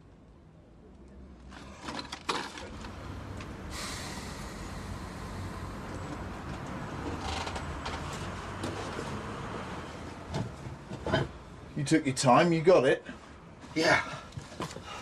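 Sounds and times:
low hum: 3.6 - 7.0.

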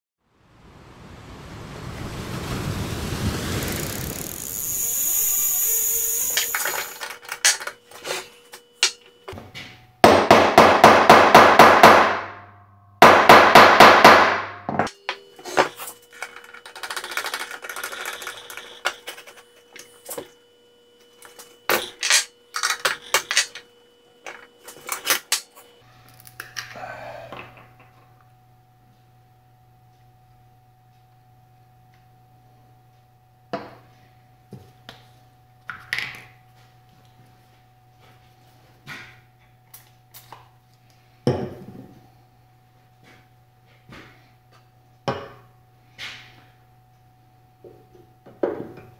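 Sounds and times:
low hum: 0.2 - 7.9
surf-like whoosh: 0.3 - 4.7
rapid hammer-like strikes: 13.0 - 14.6.

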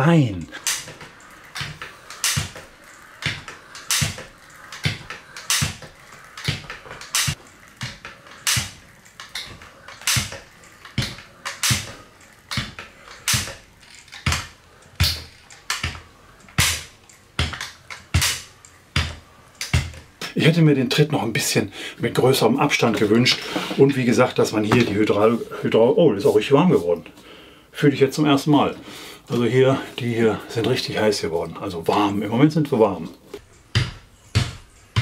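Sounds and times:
stepper pedals clacking: 0.4 - 20.4.

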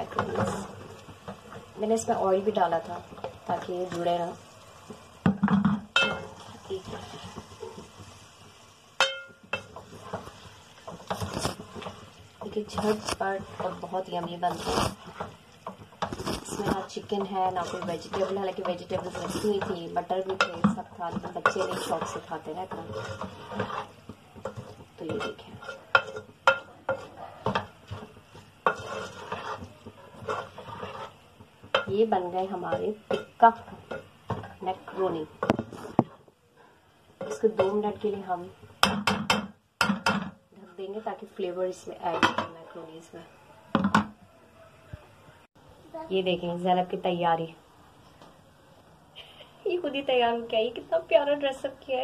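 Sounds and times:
spoon clinking against pot: 9.0 - 9.7
spoon knocking on metal pot: 9.0 - 9.7, 38.8 - 40.4
spoon stirring pasta in pot: 9.0 - 36.3.

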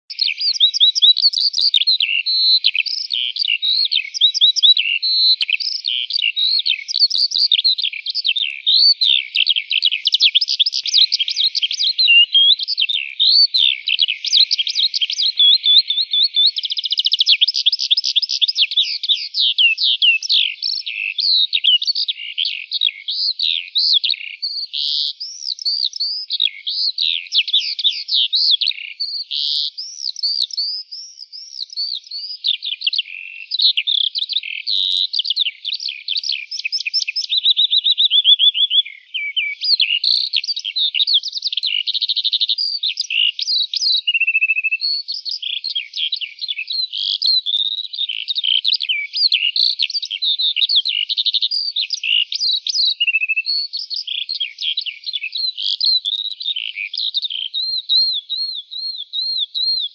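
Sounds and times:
lark singing: 0.0 - 59.9.

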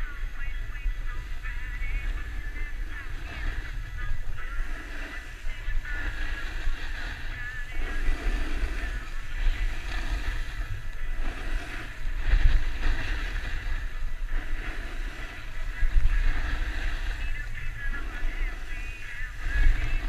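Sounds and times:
skis carving over packed snow: 0.0 - 20.0
wind buffeting microphone: 0.0 - 20.0.

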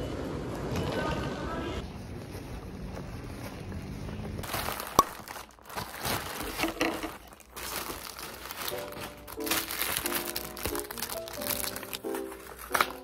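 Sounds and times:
plastic packaging crinkling: 2.3 - 13.0
light music with held notes: 8.1 - 13.0.

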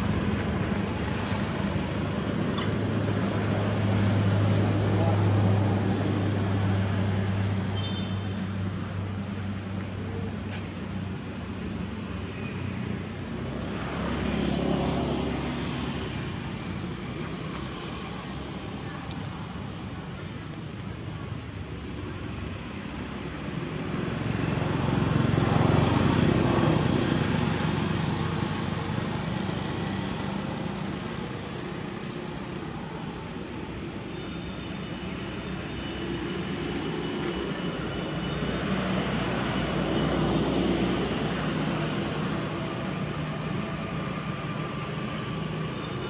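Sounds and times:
faint high steady tones: 4.4 - 4.7, 31.2 - 46.0.

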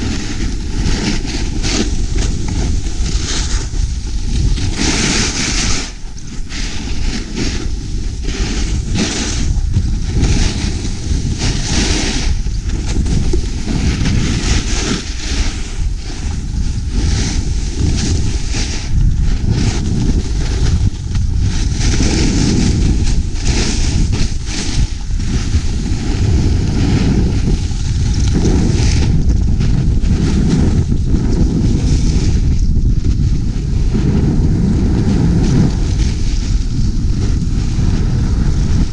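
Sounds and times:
skis hissing over snow: 0.0 - 38.9
wind buffeting microphone: 0.0 - 38.9.

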